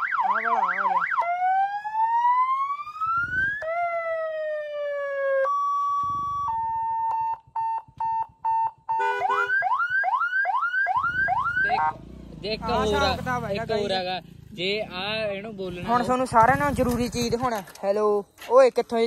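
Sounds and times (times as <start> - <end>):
electronic siren wailing and yelping: 0.0 - 12.0.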